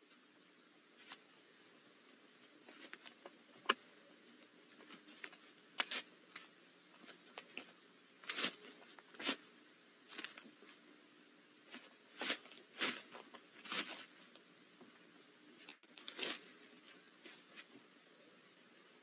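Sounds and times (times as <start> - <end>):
owl scratching and rustling: 1.0 - 1.3, 2.1 - 10.9, 11.6 - 14.5, 15.6 - 17.8.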